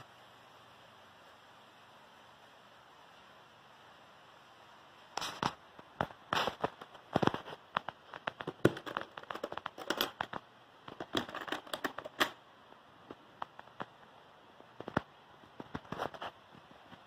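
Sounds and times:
wooden toolbox handling clicks: 8.4s - 12.4s.

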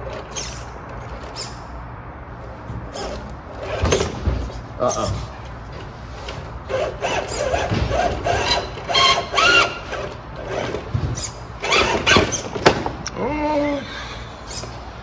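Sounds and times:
electric motor and gears whining: 5.4s - 12.6s.

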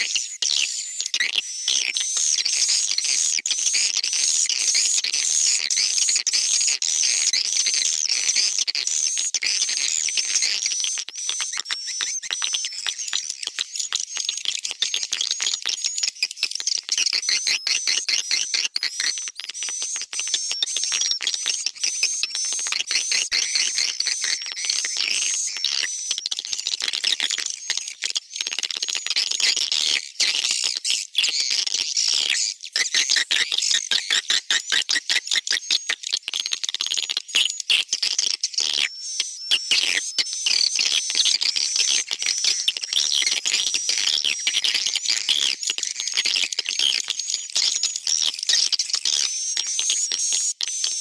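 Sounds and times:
high twittering bird chirps: 2.4s - 15.2s.

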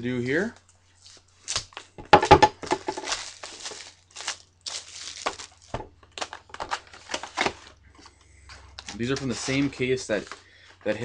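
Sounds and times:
plastic shrink-wrap tearing: 2.9s - 7.7s.

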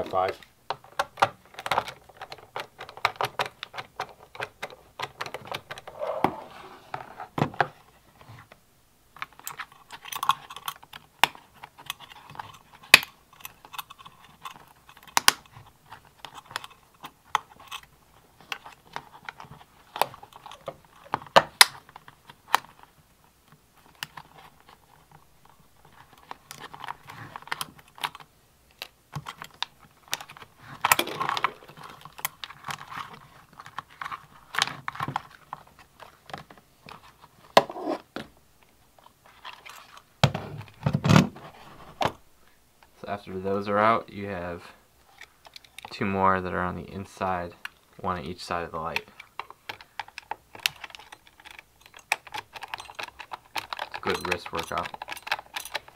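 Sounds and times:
plastic parts clicking and knocking: 0.2s - 5.9s, 9.1s - 25.2s, 25.8s - 41.3s, 48.6s - 55.9s.

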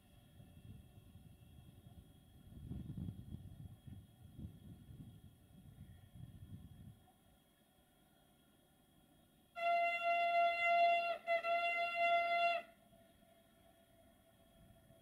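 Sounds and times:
train horn blasts: 9.5s - 15.0s.

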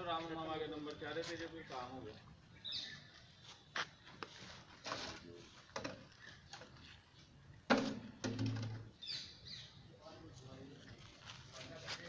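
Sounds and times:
plastic bottle scraping rustles: 4.3s - 7.0s.

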